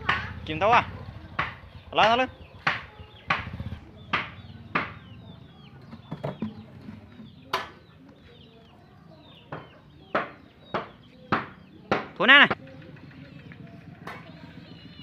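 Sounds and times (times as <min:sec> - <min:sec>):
birds chirping: 0:00.0 - 0:15.0
motorbike engine humming: 0:00.0 - 0:15.0.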